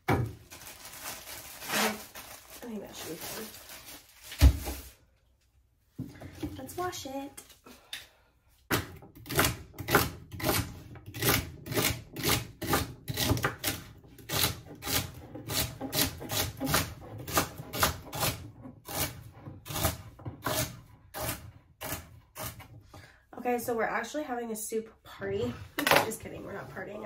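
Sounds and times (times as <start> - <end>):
knife chopping celery on wooden board: 8.7 - 22.7.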